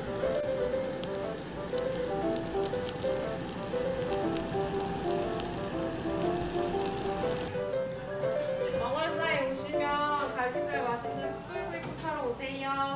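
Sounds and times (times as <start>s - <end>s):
charcoal crackle: 0.0s - 7.5s
meat sizzling on a grill: 0.0s - 7.6s
light background music: 0.0s - 12.9s.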